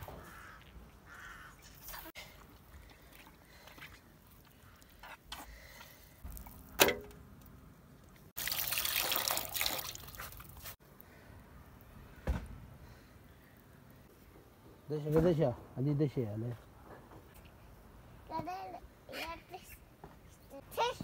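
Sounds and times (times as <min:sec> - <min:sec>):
water pouring into basin: 0:08.4 - 0:10.7.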